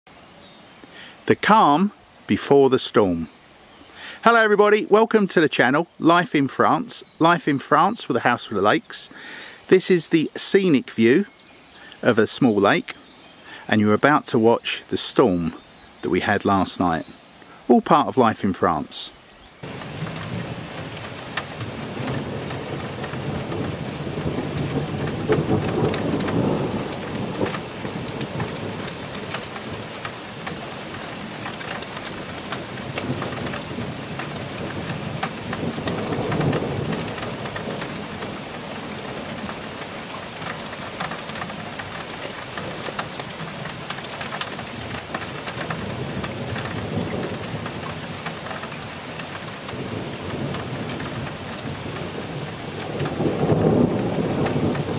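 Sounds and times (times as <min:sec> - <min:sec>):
steady rain falling: 0:00.1 - 0:54.9
rolling thunder: 0:19.6 - 0:30.0, 0:32.7 - 0:39.4, 0:49.7 - 0:54.9.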